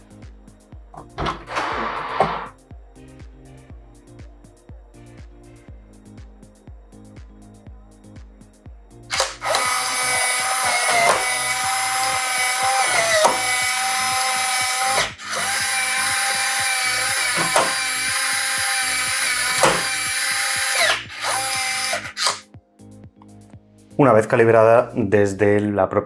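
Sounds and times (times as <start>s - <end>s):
smart lock motor whining: 9.1s - 22.4s.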